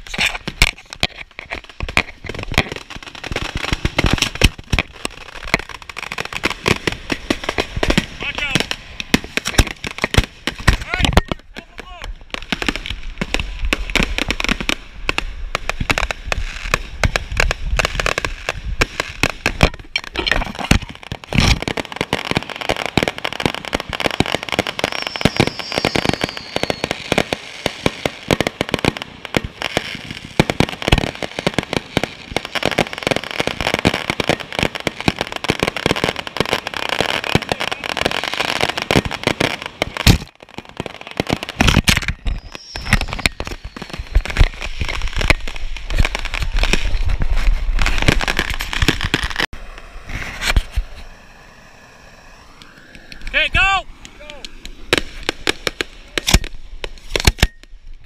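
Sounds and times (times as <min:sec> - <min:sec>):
firework shells banging: 0:00.0 - 0:11.9, 0:38.6 - 0:49.5
fireworks crackling and popping: 0:00.0 - 0:58.0
faint falling whistle: 0:24.9 - 0:27.0.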